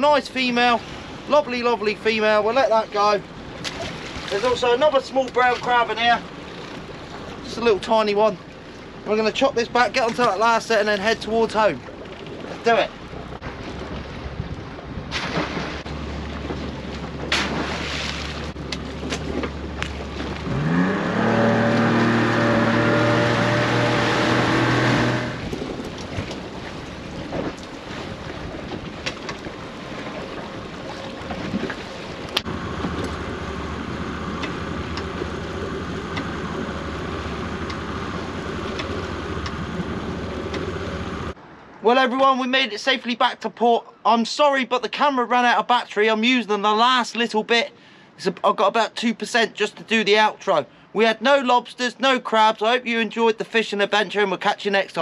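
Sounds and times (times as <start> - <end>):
boat engine idling and revving: 0.0 - 41.8.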